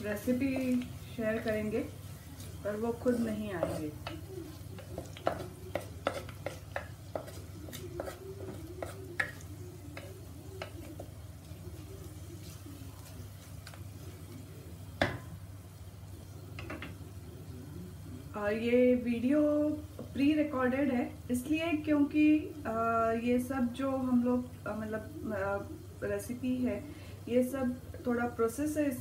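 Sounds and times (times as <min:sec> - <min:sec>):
onions frying in oil: 0:00.0 - 0:29.0
spatula scraping and tapping pot: 0:00.2 - 0:14.4.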